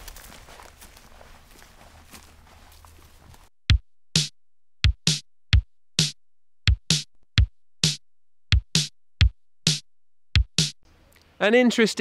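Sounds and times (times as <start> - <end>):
electronic kick drum: 3.7 - 10.8.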